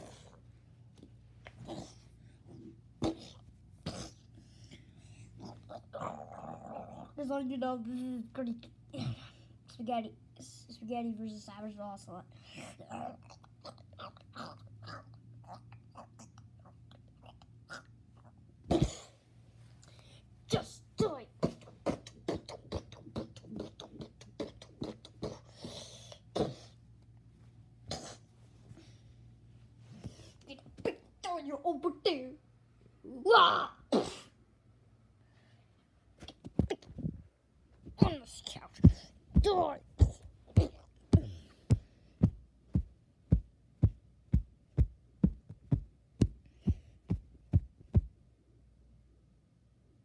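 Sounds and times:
child making percussive mouth noises: 21.0 - 26.6, 36.2 - 37.2, 38.0 - 48.1
steady thumps: 37.8 - 48.2.

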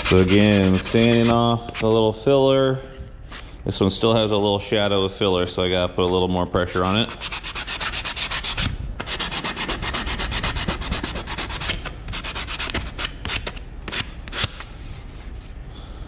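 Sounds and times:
sandpaper rubbing on wood: 0.0 - 1.8, 7.0 - 14.5.

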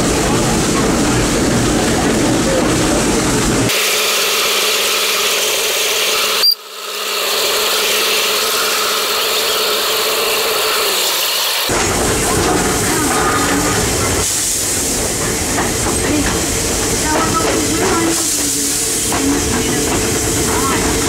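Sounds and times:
steam locomotive hissing: 0.0 - 21.0.

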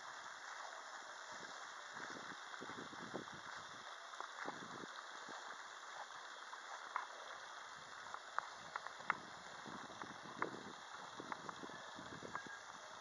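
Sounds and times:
faint outdoor hiss: 0.0 - 13.0
light ticks: 3.6 - 12.6.

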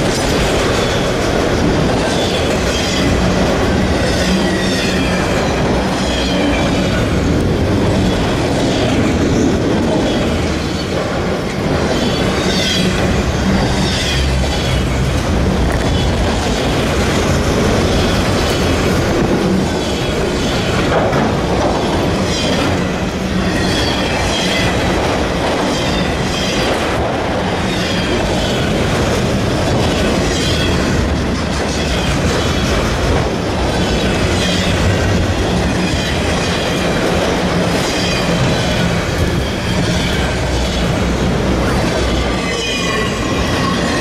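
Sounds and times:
clickety-clack over rail joints: 0.0 - 44.0
train wheels rumbling on rail: 0.0 - 44.0
high metallic squeal: 2.2 - 7.0, 11.9 - 15.0, 22.1 - 25.0, 42.0 - 44.0.

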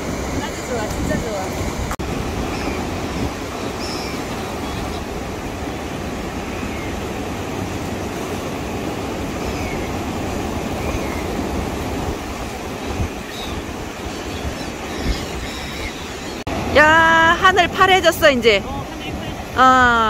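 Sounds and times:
surf washing over rocky shore: 0.0 - 20.0
wind buffeting microphone: 0.0 - 20.0
faint gull calls: 3.6 - 5.1, 9.4 - 10.0, 13.2 - 16.4.

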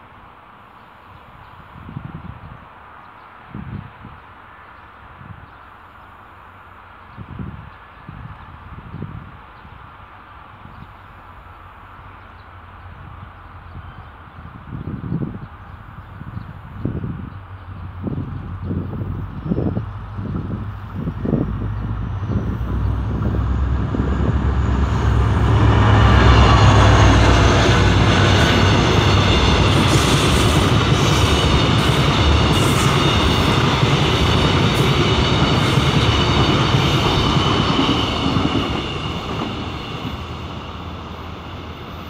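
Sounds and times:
locomotive low rumble: 15.0 - 42.0
train wheel clatter: 22.7 - 40.8.

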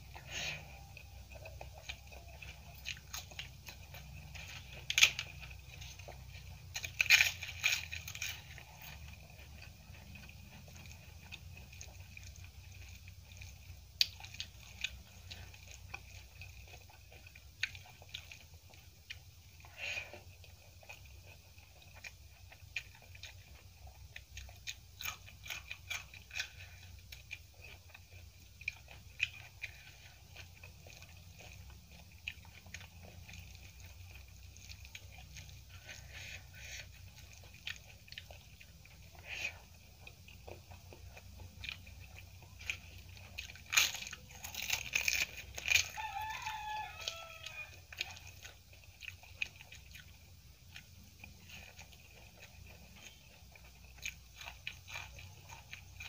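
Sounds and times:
papad crackling and crunching: 0.0 - 18.7, 24.2 - 50.4
chewing food: 0.0 - 56.0.

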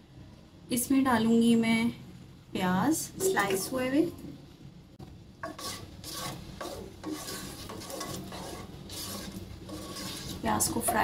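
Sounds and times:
onions stirred scraping pot: 5.4 - 11.0.

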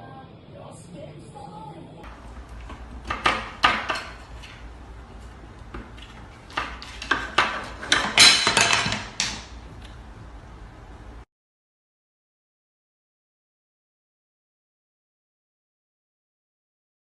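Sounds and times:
hard objects clattering: 2.1 - 10.0.

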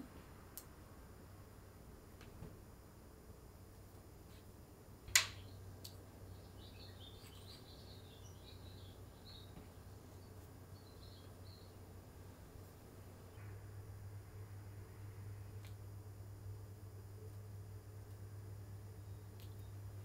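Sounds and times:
low room hum: 0.0 - 20.0
faint high chirps: 6.2 - 11.8.

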